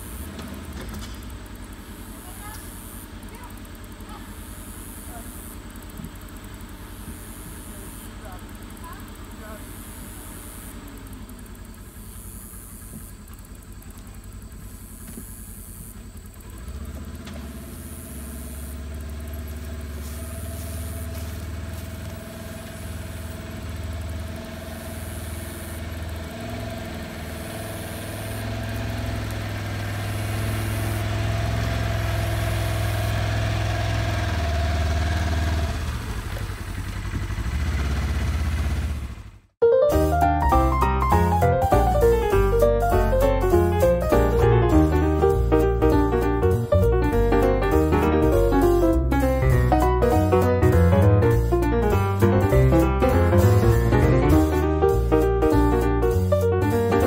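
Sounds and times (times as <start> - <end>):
steady whine: 0.0 - 16.6, 17.7 - 33.5
utility vehicle engine running: 0.0 - 57.0.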